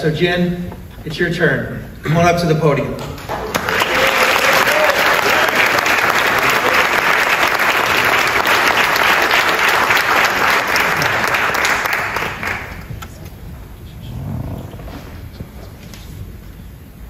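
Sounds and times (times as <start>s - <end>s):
audience applauding: 3.1s - 13.2s.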